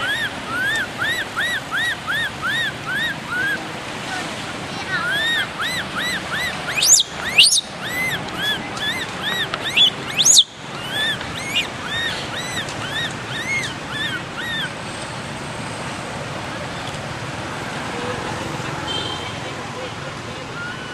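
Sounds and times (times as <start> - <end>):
baby monkey squealing: 0.0 - 3.6, 4.9 - 14.8, 20.5 - 20.9.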